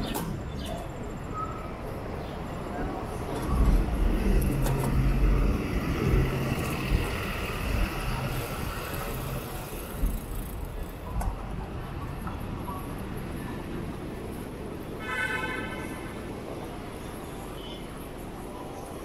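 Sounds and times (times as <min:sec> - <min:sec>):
traffic rumble: 0:00.0 - 0:19.0
engine hum: 0:03.2 - 0:10.8.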